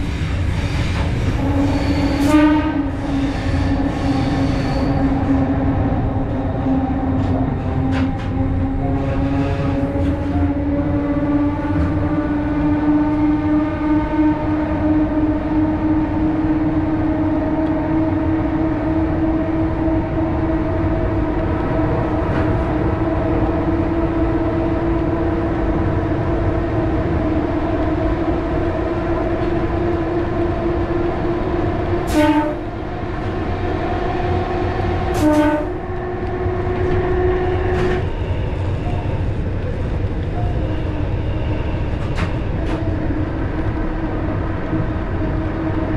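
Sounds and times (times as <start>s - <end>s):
train running gear rumble: 0.0s - 45.9s
train horn blasts: 1.4s - 3.8s, 32.0s - 32.8s, 35.1s - 36.4s.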